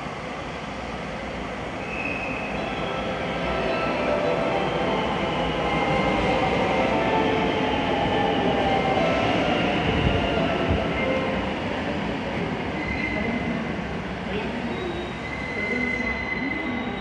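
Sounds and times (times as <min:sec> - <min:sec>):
electric train passing: 0:00.0 - 0:17.0
train whine: 0:00.0 - 0:17.0.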